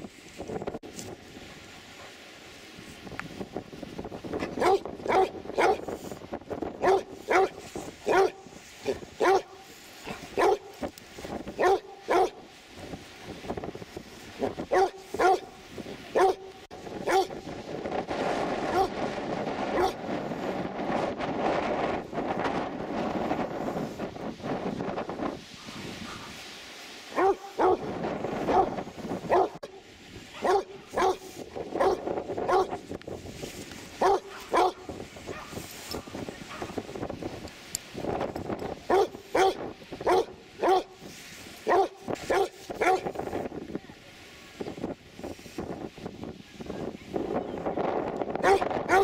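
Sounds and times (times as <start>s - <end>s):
dog barking: 4.6s - 5.8s, 6.8s - 10.8s, 11.6s - 12.4s, 14.7s - 15.5s, 16.2s - 16.5s, 17.1s - 17.3s, 18.7s - 18.9s, 19.8s - 20.0s, 27.1s - 27.8s, 28.5s - 29.7s, 30.4s - 32.7s, 34.0s - 35.6s, 36.5s - 36.8s, 38.9s - 41.0s, 41.7s - 43.1s, 48.4s - 49.0s.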